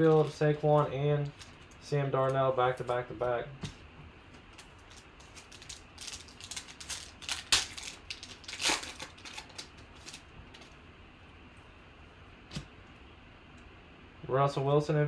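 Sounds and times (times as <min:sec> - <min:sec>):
foil wrapper crinkling and tearing: 0:04.6 - 0:10.6.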